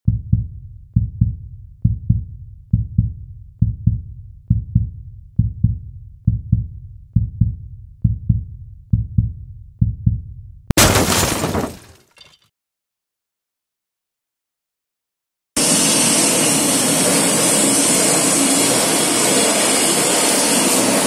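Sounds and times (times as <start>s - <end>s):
heartbeat thumps: 0.1s - 10.4s.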